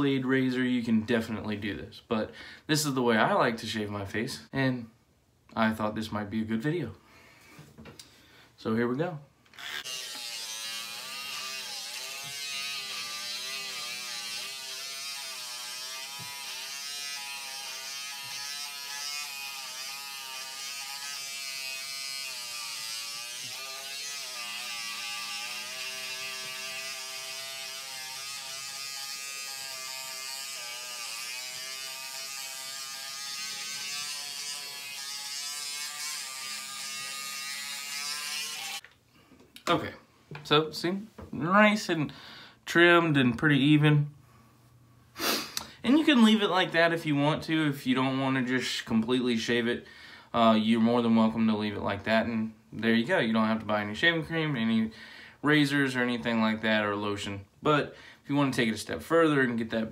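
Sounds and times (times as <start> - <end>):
electric shaver buzzing: 9.6 - 38.8.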